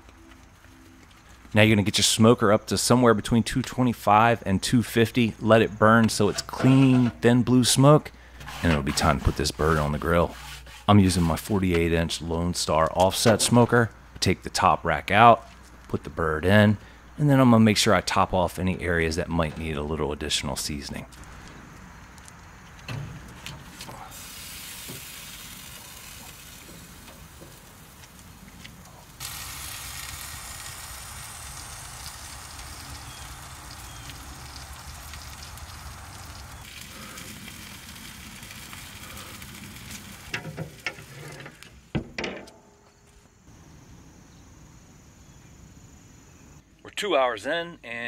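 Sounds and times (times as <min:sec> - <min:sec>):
wood fire hissing: 0:23.5 - 0:41.9.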